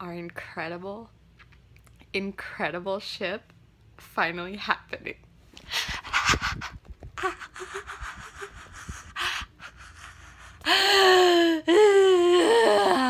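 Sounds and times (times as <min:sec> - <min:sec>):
woman gasping: 0:07.2 - 0:13.0.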